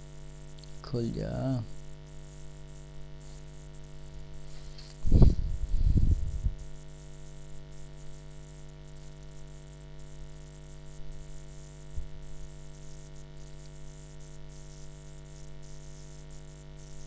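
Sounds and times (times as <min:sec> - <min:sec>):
electrical hum and buzz: 0:00.0 - 0:17.0
faint low thump: 0:05.0 - 0:06.5.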